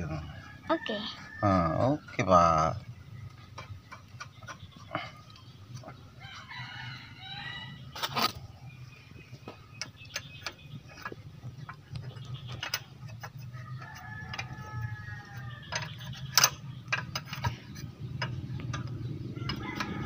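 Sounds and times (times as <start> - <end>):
rooster crowing: 6.2 - 8.0, 13.5 - 15.8, 19.4 - 20.0.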